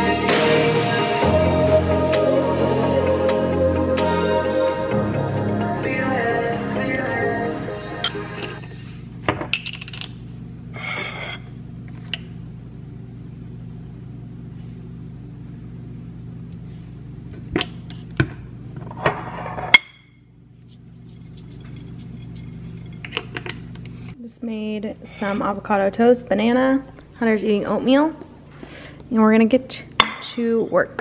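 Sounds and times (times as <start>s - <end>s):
steady low hum: 0.0s - 31.0s.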